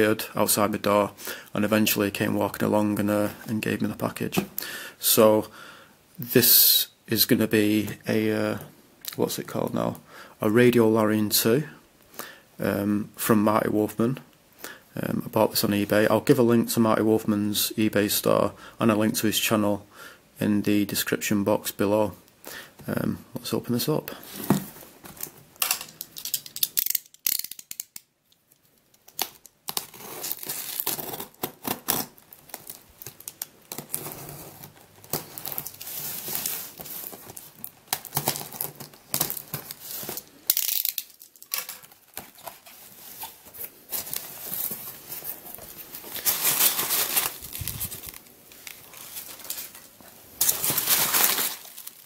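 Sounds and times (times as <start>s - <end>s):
packing tape ripping: 25.6s - 28.0s, 29.1s - 42.6s, 46.0s - 49.8s, 50.4s - 52.0s
packing peanuts rustling: 29.7s - 52.0s.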